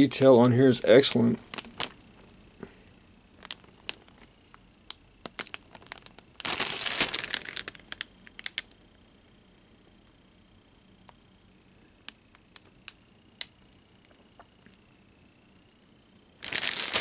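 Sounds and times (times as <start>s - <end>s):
plastic bags crinkling: 1.4s - 2.0s, 3.4s - 4.3s, 5.2s - 8.6s, 16.4s - 17.0s.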